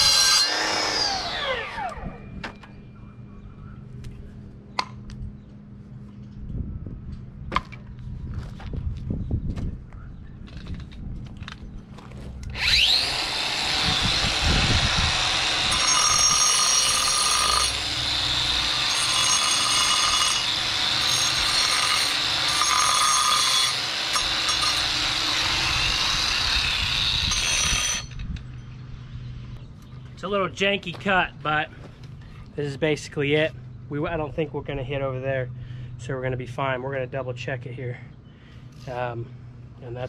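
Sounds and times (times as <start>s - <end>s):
power saw cutting stone: 0.0s - 2.2s, 12.5s - 28.1s.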